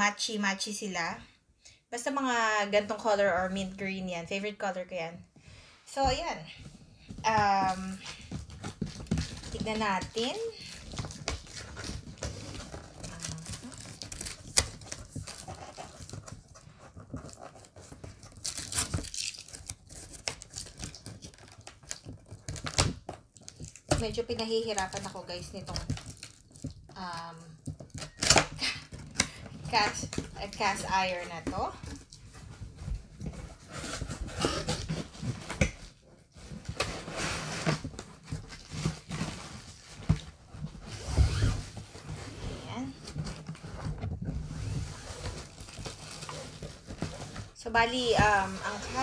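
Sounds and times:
cardboard flap scraping and rustling: 6.9s - 26.8s, 29.7s - 49.0s
cardboard ripping: 7.6s - 24.0s.

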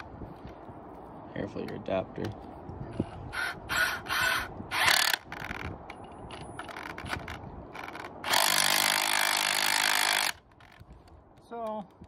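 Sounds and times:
drill motor running under load: 7.8s - 10.4s.

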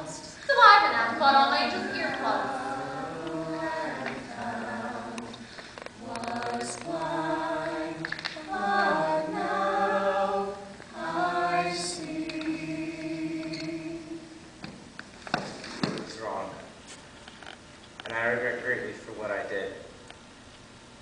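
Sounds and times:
group singing a cappella: 0.0s - 14.6s.

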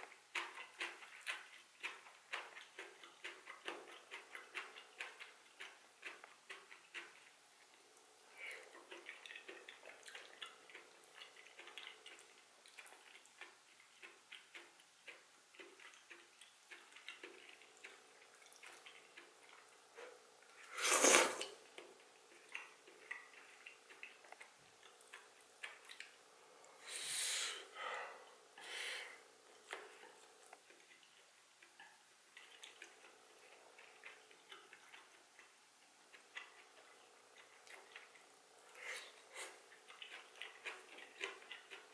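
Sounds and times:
chewing soft greens: 0.0s - 41.9s
wet mouth clicks and smacks: 37.4s - 41.9s.

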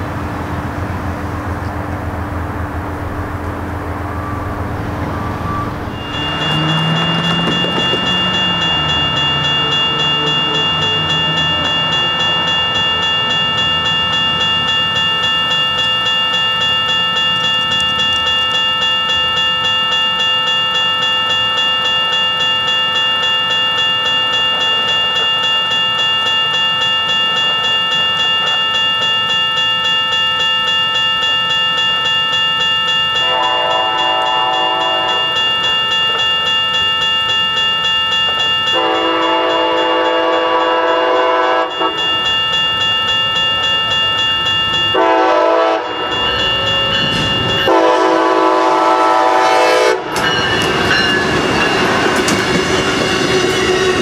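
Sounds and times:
crossing bell ringing rapidly: 2.2s - 54.0s
train horn: 4.2s - 8.6s, 33.2s - 35.5s, 38.7s - 42.0s, 44.9s - 46.2s, 47.6s - 50.2s.

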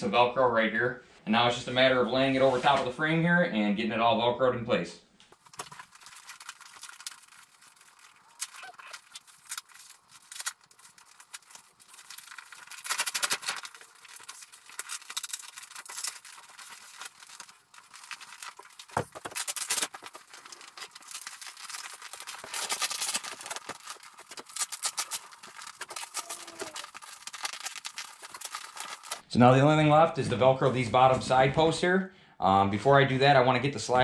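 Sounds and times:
velcro strips ripping: 5.4s - 29.2s
vinyl cover rustling: 5.4s - 29.2s.

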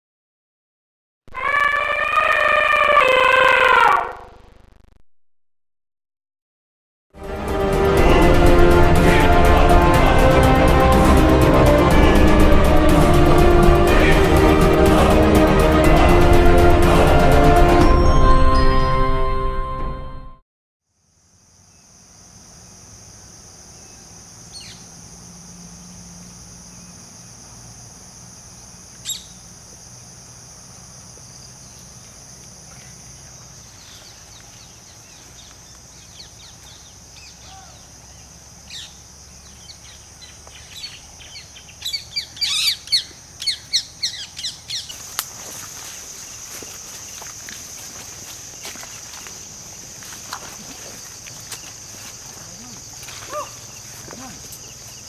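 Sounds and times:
bird chirps: 29.0s - 29.4s, 33.7s - 45.0s
high-pitched insect drone: 37.2s - 55.0s.

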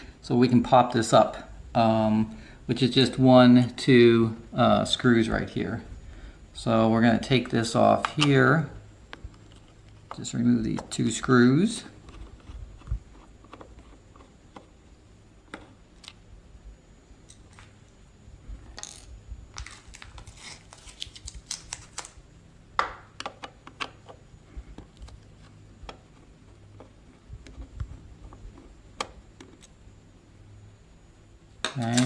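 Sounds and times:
faint low hum: 0.0s - 32.0s
screwdriver clicking and scraping: 12.0s - 14.7s.

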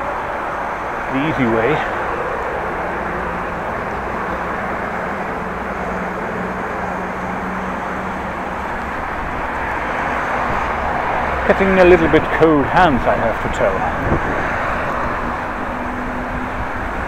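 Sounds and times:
wind on microphone: 8.2s - 11.4s, 12.2s - 17.0s.

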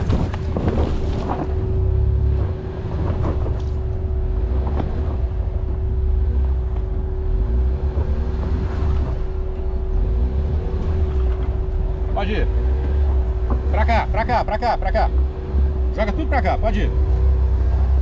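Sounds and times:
wind rumbling on microphone: 0.0s - 13.9s
car engine under load: 0.0s - 18.0s.

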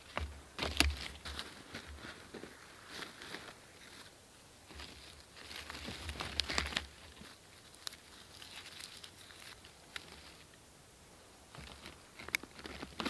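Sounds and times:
bark tinder being torn and crumpled: 4.8s - 10.4s, 11.6s - 13.0s.

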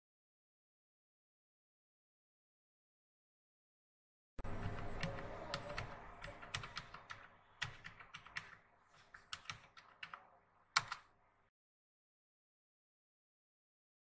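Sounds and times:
keyboard key clicks: 4.5s - 11.1s.

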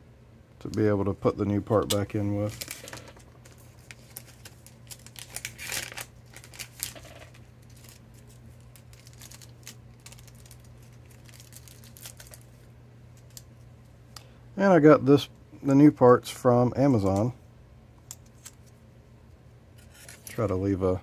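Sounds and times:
low electrical hum: 0.0s - 21.0s
plastic package crinkling: 1.7s - 13.5s.

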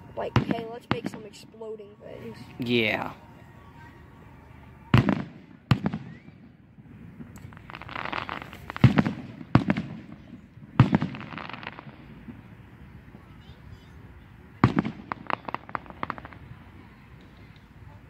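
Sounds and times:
distant firework bangs: 0.2s - 1.7s, 4.9s - 13.5s, 14.6s - 17.8s.

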